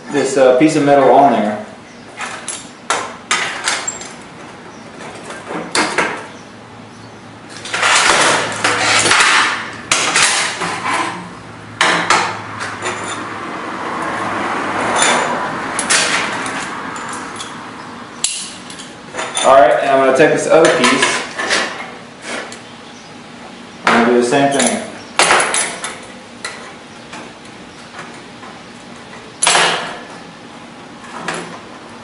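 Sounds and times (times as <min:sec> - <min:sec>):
steel clanking and scraping: 0:07.5 - 0:13.4, 0:14.8 - 0:17.6, 0:18.2 - 0:22.7.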